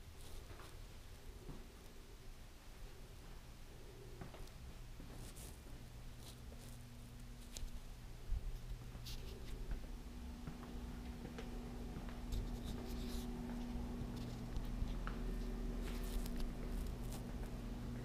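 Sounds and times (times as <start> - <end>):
low electrical hum: 0.0 - 18.0
light clicks of footsteps: 4.2 - 17.7
scratchy rubbing of camera handling: 12.3 - 13.4.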